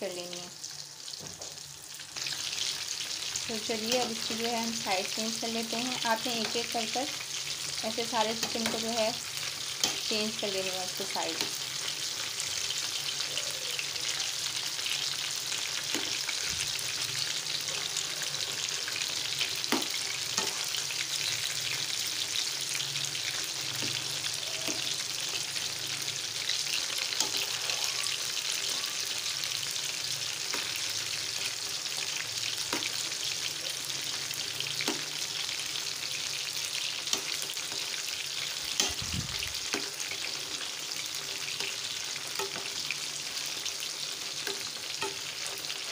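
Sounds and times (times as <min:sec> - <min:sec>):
chicken sizzling in oil: 0:00.0 - 0:45.9.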